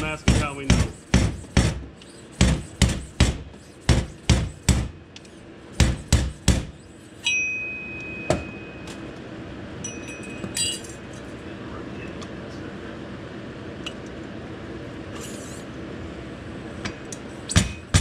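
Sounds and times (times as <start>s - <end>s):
high metallic ring: 7.2s - 9.1s, 9.8s - 11.1s.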